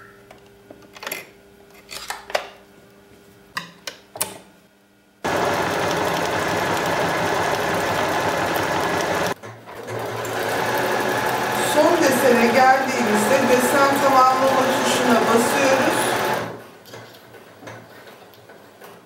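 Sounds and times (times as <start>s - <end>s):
sewing machine stitching: 5.3s - 16.6s.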